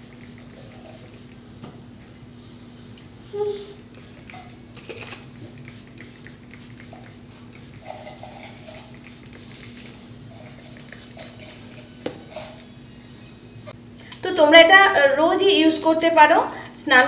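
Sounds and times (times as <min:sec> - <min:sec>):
faint steady hum: 0:00.0 - 0:17.0
spray bottle squirts: 0:03.7 - 0:11.5.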